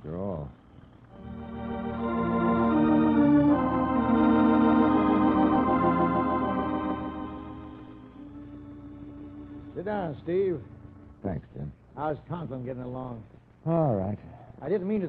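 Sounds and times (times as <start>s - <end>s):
organ chords: 1.0s - 11.4s.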